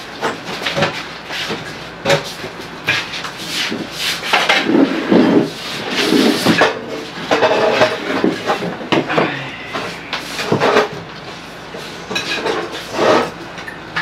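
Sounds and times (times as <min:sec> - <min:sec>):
dishes and utensils clattering: 0:06.3 - 0:14.0.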